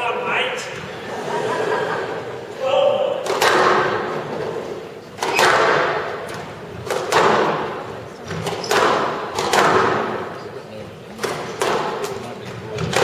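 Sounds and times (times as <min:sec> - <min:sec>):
squash ball hits echoing: 0:03.0 - 0:04.4, 0:05.1 - 0:10.4, 0:11.1 - 0:13.0.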